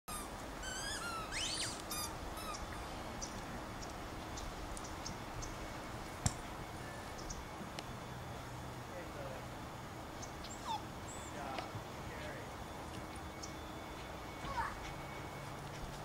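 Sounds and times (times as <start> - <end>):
rising whistle: 0.1 - 2.6
birds chirping: 0.1 - 16.0
outdoor background noise: 0.1 - 16.0.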